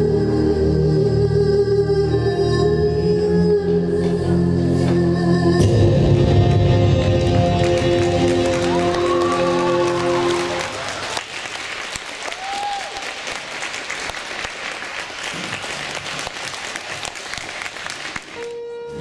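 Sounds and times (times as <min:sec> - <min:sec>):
music: 0:00.0 - 0:11.1, 0:16.6 - 0:19.0
audience applauding: 0:07.0 - 0:18.6.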